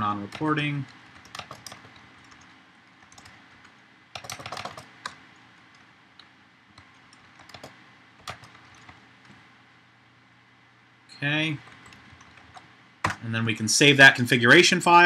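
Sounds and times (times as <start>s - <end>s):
typing on computer keyboard: 0.3s - 5.2s, 6.8s - 9.0s, 11.6s - 13.2s.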